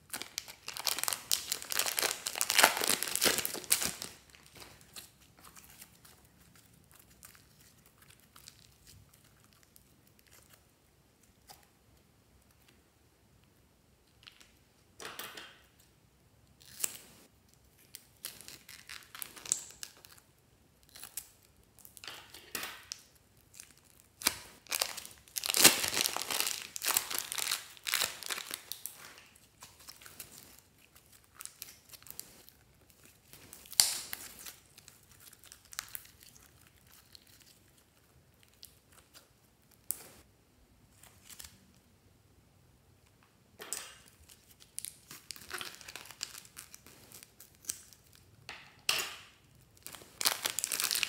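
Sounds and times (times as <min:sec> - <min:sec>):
slime squishing: 0:00.0 - 0:11.8
plastic bags crinkling: 0:00.1 - 0:09.6, 0:23.6 - 0:37.4, 0:44.2 - 0:48.2, 0:49.8 - 0:51.0.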